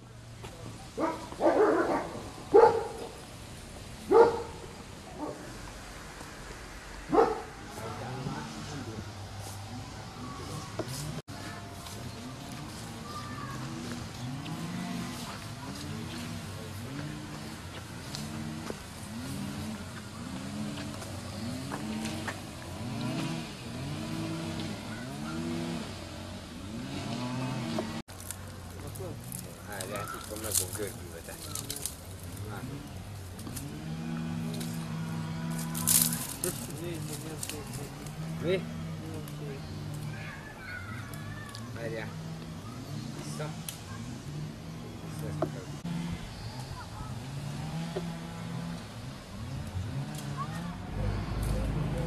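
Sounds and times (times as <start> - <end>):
dog barking: 1.0 - 3.2, 4.1 - 4.6, 5.2 - 5.5, 7.1 - 7.6
engine revving: 4.1 - 52.0.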